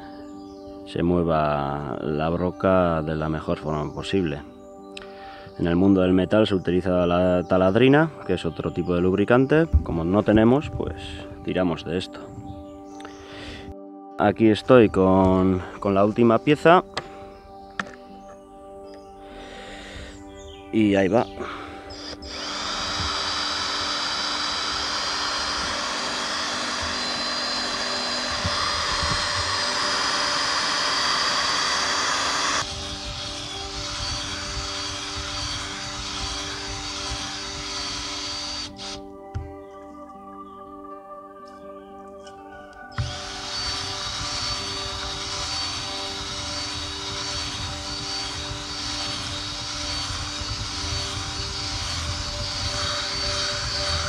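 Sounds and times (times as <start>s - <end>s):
power drill boring through steel: 21.4s - 39.0s, 43.0s - 54.0s.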